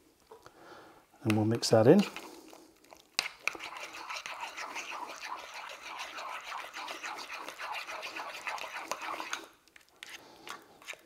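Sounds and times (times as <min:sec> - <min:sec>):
metal spoon scraping a ceramic bowl: 0:03.4 - 0:10.2.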